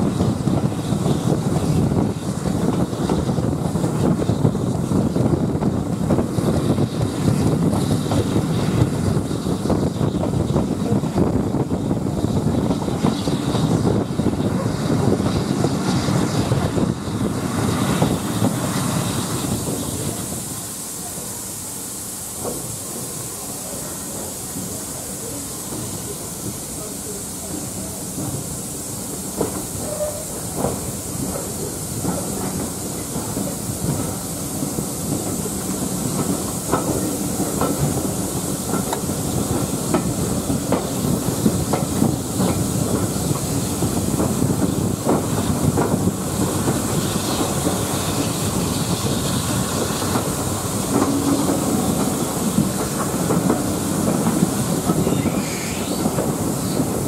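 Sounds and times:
rushing air: 0:00.0 - 0:57.0
steam hissing: 0:00.0 - 0:57.0
train wheels clacking on rails: 0:22.3 - 0:57.0.

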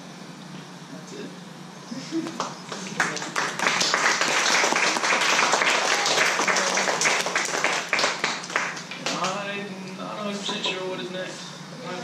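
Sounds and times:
audience applause: 0:02.4 - 0:09.3.

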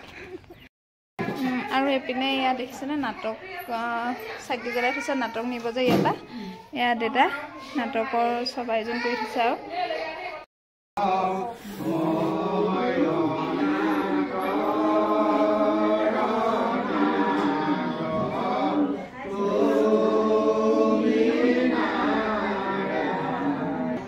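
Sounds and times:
voices singing a chant-like melody: 0:11.0 - 0:24.0.

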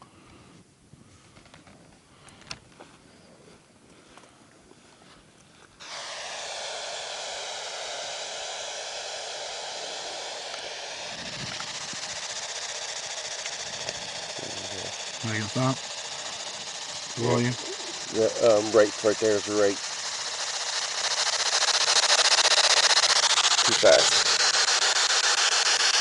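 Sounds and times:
loud radio static hiss: 0:10.0 - 0:26.0.

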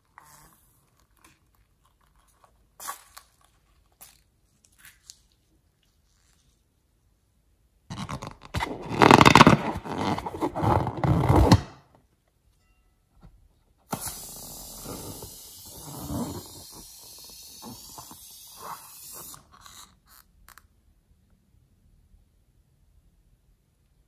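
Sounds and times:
snipping and rubbery handling: 0:07.9 - 0:11.8
steady hiss: 0:13.9 - 0:19.5.

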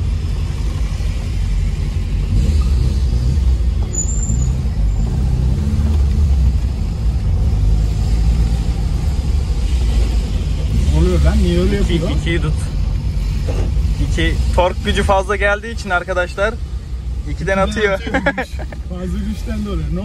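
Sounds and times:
car engine and exhaust rumble: 0:00.0 - 0:20.0.

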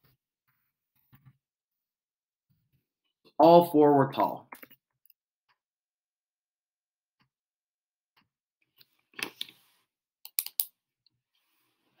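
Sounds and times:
computer mouse clicking: 0:10.3 - 0:10.7.

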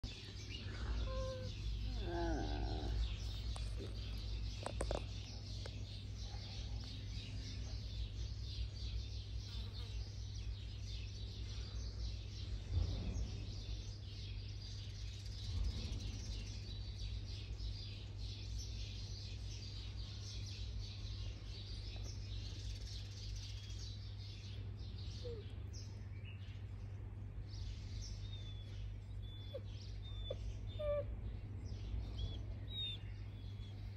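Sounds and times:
steady low rumble: 0:00.0 - 0:09.2
small birds chirping: 0:00.0 - 0:33.9.

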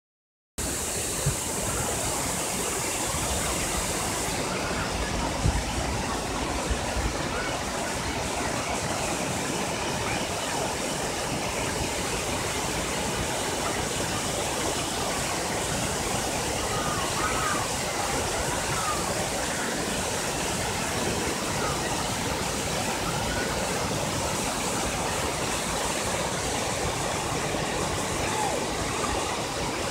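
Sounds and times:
waterfall rushing: 0:00.6 - 0:29.9.

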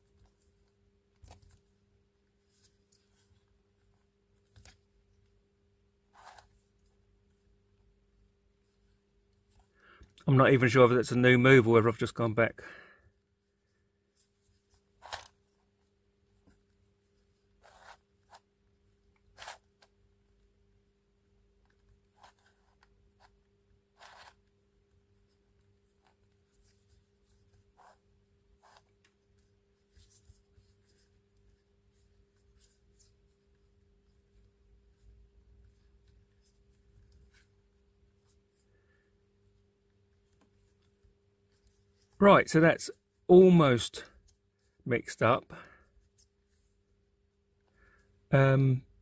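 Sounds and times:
faint steady hum: 0:00.0 - 0:49.0
puzzle cube clicking and scraping: 0:06.1 - 0:06.6, 0:14.8 - 0:15.5, 0:17.5 - 0:18.5, 0:19.2 - 0:19.9, 0:21.7 - 0:24.6.

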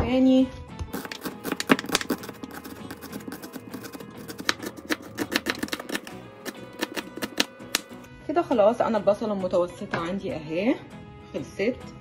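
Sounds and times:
knife chopping on cutting board: 0:01.0 - 0:08.0.

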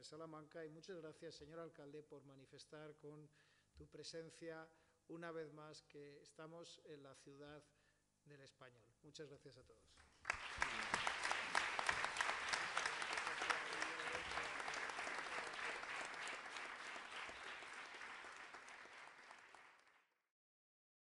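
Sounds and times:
audience applauding: 0:10.2 - 0:20.1.

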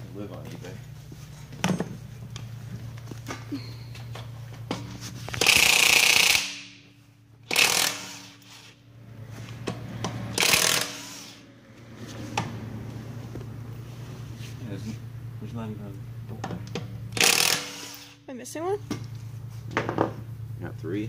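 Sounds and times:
impact wrench hammering: 0:04.7 - 0:08.7, 0:09.6 - 0:11.4, 0:16.4 - 0:18.2.

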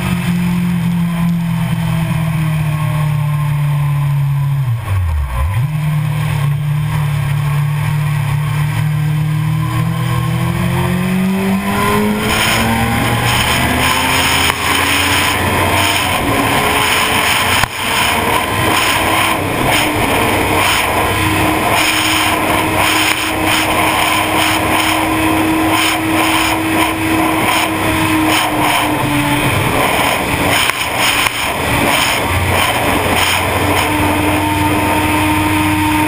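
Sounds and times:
motorcycle engine at high speed: 0:00.0 - 0:36.0
wind rush over microphone: 0:11.2 - 0:36.0.

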